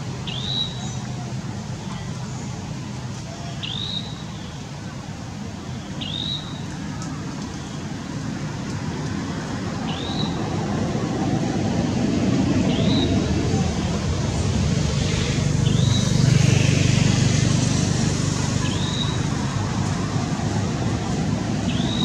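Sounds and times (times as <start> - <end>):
low outdoor rumble: 6.7 - 22.0.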